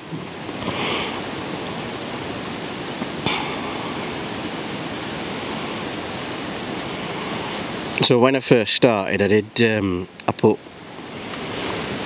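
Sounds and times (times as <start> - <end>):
steady outdoor hiss: 0.0 - 12.0.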